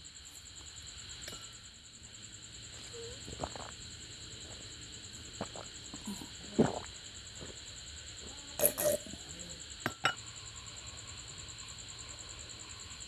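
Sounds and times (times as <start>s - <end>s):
person gulping drink: 3.2s - 3.8s, 5.4s - 6.9s, 8.6s - 9.2s.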